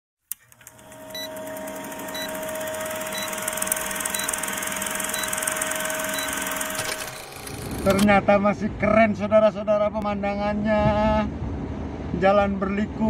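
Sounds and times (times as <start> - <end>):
film projector hum and rattle: 0.3 - 8.1
projector click: 0.3 - 8.1
short high beep: 3.1 - 3.5, 4.1 - 4.4, 5.0 - 6.7.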